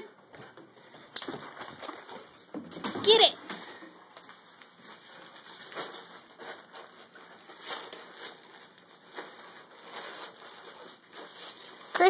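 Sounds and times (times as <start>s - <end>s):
wrapping paper crinkling and tearing: 4.8s - 12.0s.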